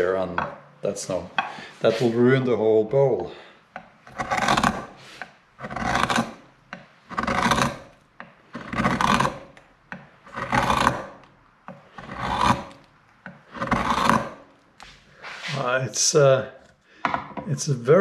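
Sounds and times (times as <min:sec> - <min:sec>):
carving gouge scraping wood: 0:03.8 - 0:17.3.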